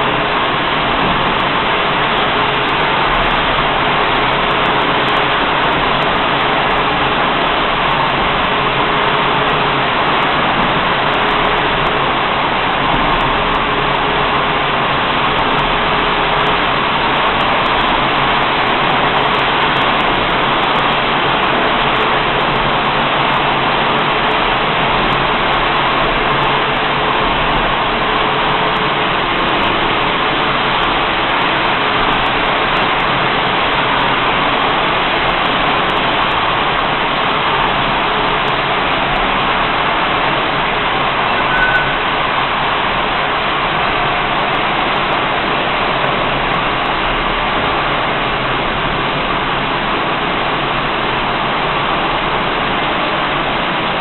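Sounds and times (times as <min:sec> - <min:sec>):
bottle washing machine running: 0:00.0 - 0:54.0
faint tone: 0:41.3 - 0:42.1.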